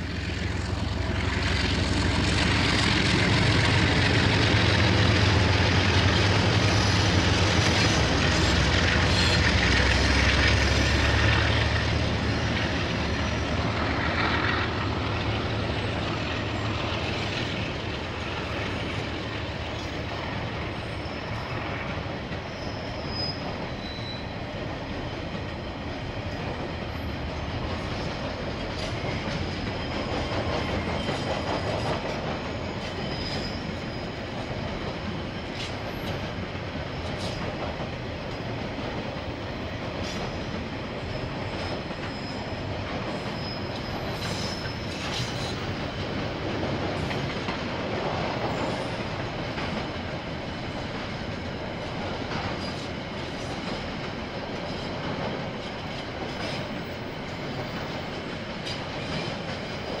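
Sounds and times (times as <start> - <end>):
train wagons rolling past: 0.0 - 60.0
faint wheel squeal: 22.4 - 24.5, 32.5 - 34.3, 41.1 - 45.7.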